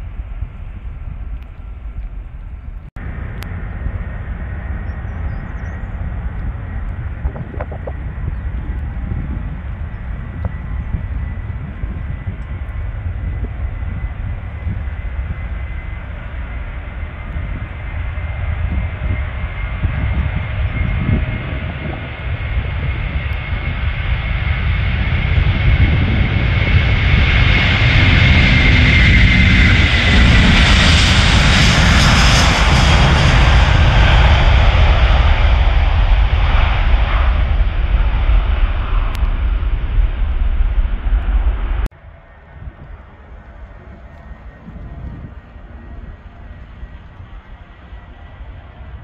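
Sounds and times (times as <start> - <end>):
distant jet airliners: 0.0 - 49.0
wind buffeting microphone: 0.0 - 49.0
high jet fan whine: 40.9 - 49.0.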